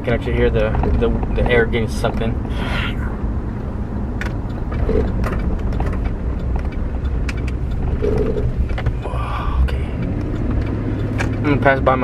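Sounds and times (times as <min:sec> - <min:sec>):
truck engine rumble: 0:00.0 - 0:12.0
air intake rush: 0:02.4 - 0:03.4.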